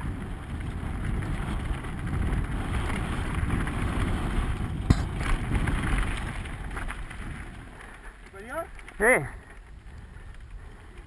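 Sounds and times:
mountain bike rumbling and rattling: 0.0 - 11.0
wind buffeting camera: 0.0 - 11.0
sharp knock: 4.9 - 5.4.

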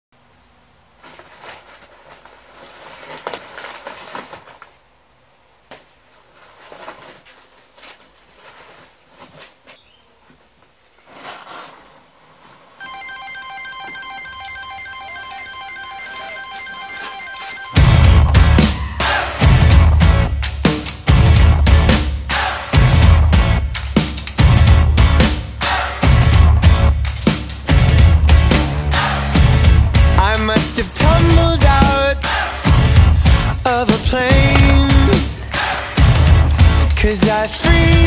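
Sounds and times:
tissue paper rustling: 1.0 - 4.8, 6.0 - 9.8
music with repeated high tones: 12.8 - 19.6
band playing: 12.8 - 20.3, 27.7 - 38.0.

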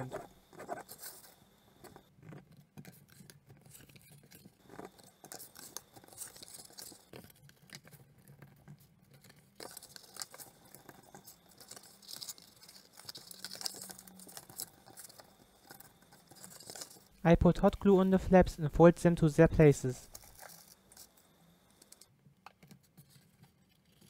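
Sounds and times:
cardboard scratching and rustling: 0.0 - 17.2.

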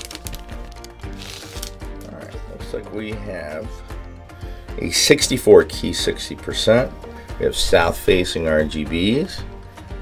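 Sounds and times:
packaging rustle: 0.0 - 2.2
background music: 0.0 - 10.0.

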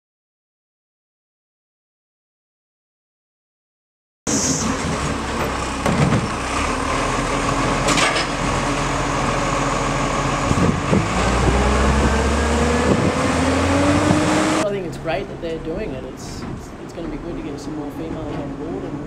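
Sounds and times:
truck clunks: 4.3 - 9.0, 16.3 - 17.2, 18.1 - 19.0
truck engine drone: 4.3 - 19.0.

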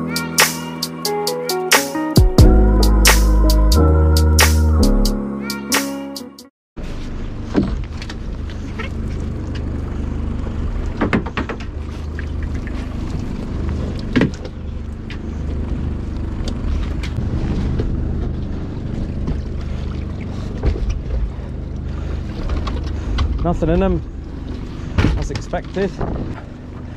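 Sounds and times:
boat engine running: 6.8 - 26.9
knocks against hull: 25.0 - 26.4.

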